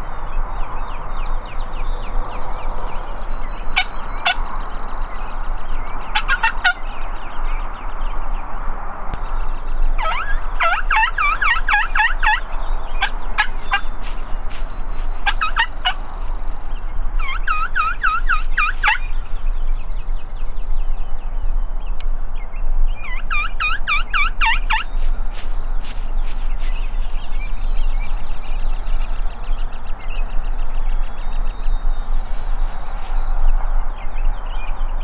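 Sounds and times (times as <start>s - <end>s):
turkeys gobbling: 3.8s - 4.4s, 6.1s - 6.8s, 10.0s - 14.2s, 15.2s - 16.1s, 17.2s - 19.1s, 23.1s - 24.9s.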